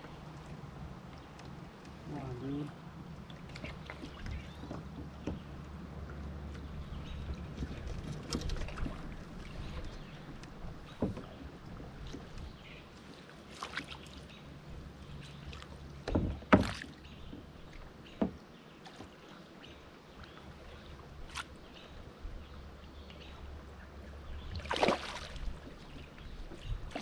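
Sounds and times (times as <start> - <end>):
low steady rumble: 0.0 - 13.1
water swishing: 0.0 - 22.1, 23.4 - 27.0
water lapping: 0.0 - 27.0
knocks and bumps on kayak: 4.0 - 5.6, 10.8 - 11.4, 16.0 - 17.5.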